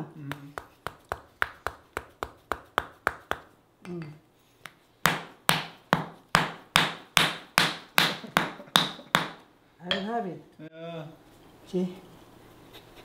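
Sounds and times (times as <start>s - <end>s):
mallet tapping wooden chisel: 0.3s - 10.2s.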